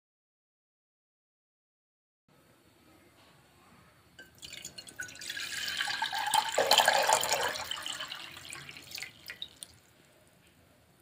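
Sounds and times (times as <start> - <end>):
water pouring into metal saucepan: 4.2 - 9.8
water drips: 4.2 - 9.9.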